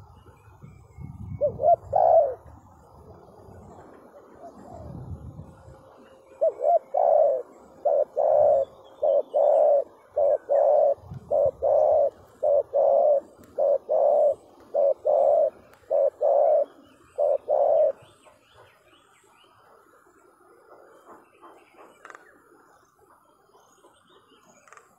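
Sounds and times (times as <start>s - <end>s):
dove cooing: 0.0s - 18.7s.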